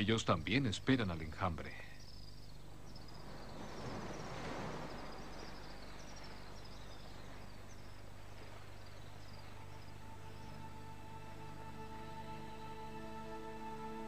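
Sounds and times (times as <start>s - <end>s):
swifts chirping: 0.0s - 13.0s
steady low hum: 0.0s - 14.0s.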